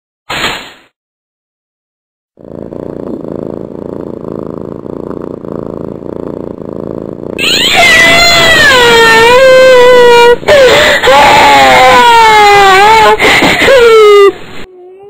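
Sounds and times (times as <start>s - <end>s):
cat purring: 2.4s - 7.4s
long high wavering cry: 7.4s - 13.2s.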